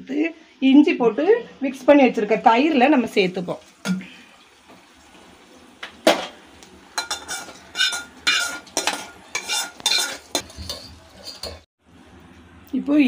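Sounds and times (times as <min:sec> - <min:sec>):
metal scraping and clinking: 0:07.0 - 0:11.7.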